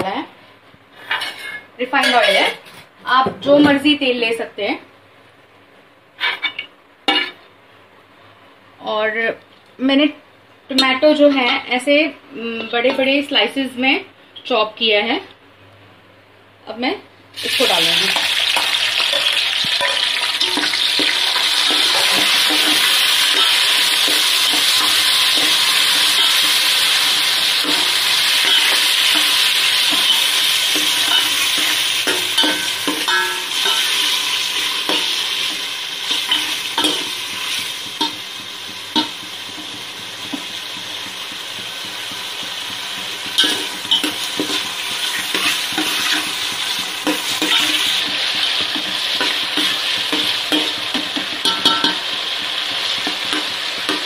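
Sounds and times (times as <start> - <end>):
tomatoes sizzling in oil: 17.4 - 54.0.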